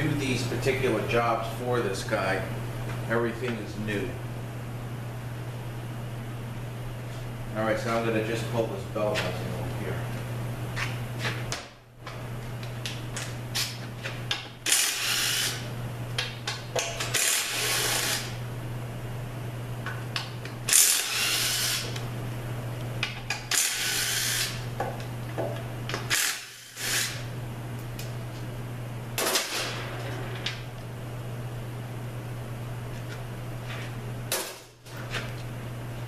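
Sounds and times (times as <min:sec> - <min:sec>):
steady low hum: 0:00.0 - 0:36.0
cordless power driver spinning bolts: 0:14.6 - 0:15.6, 0:17.0 - 0:18.3, 0:20.7 - 0:22.0, 0:23.5 - 0:24.6, 0:26.0 - 0:27.2.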